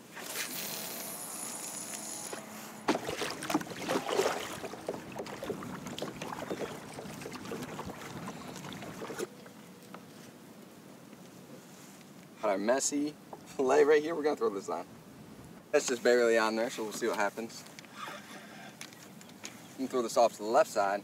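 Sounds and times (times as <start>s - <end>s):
paddle splashing water: 2.8s - 9.6s.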